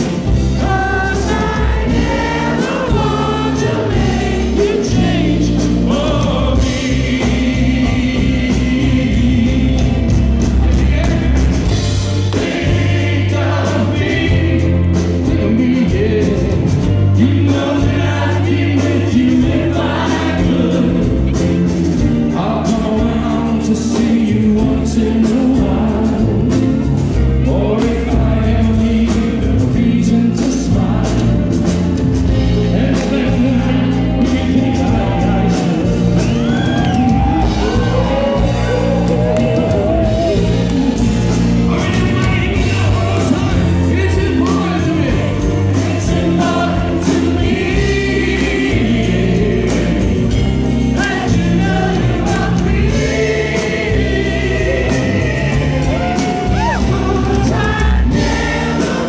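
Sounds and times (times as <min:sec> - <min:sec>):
man singing lead vocals: 0:00.0 - 0:31.7, 0:32.3 - 0:59.0
bass guitar: 0:00.0 - 0:59.0
drums: 0:00.0 - 0:59.0
voices singing together: 0:00.0 - 0:59.0.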